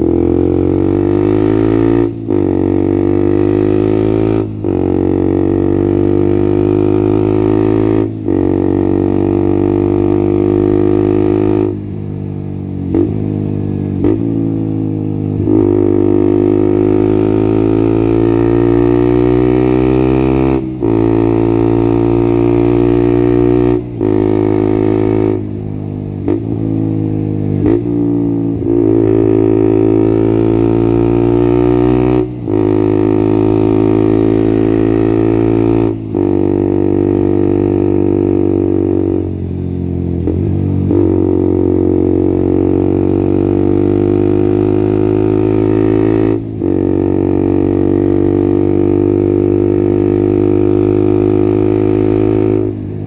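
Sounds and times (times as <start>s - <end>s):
motorcycle engine droning at high revs: 0.0s - 53.0s.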